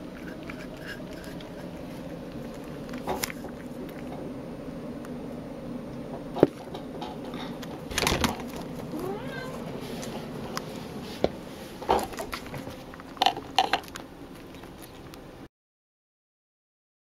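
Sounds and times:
cat meowing: 8.9 - 9.8.

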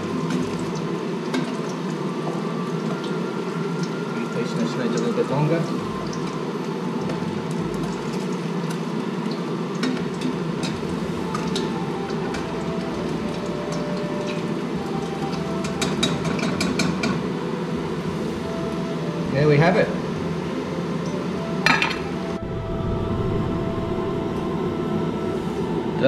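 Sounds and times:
fish deep-frying in oil: 0.0 - 22.2
low hum: 20.1 - 26.0.

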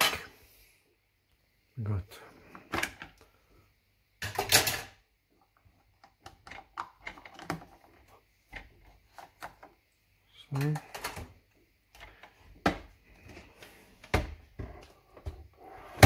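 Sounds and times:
plastic parts clicking and knocking: 4.2 - 9.8, 10.5 - 13.4
plastic clatter: 5.7 - 9.8.

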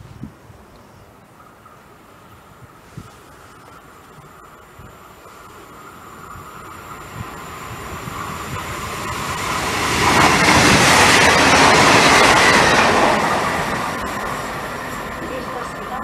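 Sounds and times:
passenger train rushing past: 3.8 - 16.0.

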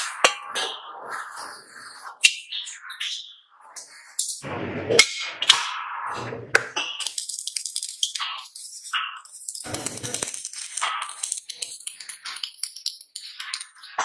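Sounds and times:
arc welding crackling: 7.0 - 13.9.

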